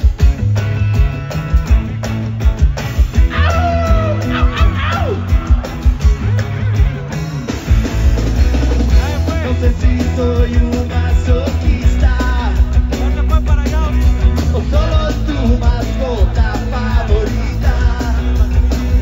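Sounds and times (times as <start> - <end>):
bass guitar: 0.0 - 19.0
drums: 0.0 - 19.0
electric guitar: 0.0 - 19.0
person singing: 3.3 - 6.2, 8.9 - 19.0.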